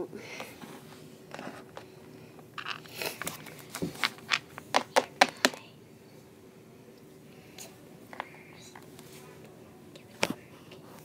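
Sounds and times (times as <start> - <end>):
plastic toys tapping on wood: 4.0 - 5.6.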